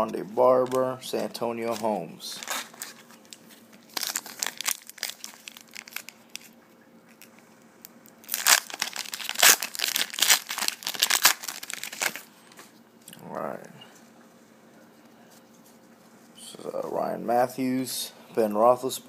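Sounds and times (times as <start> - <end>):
foil wrapper crinkling: 0.6 - 7.4, 8.0 - 12.7
foil wrapper tearing open: 1.7 - 7.3, 8.2 - 12.3.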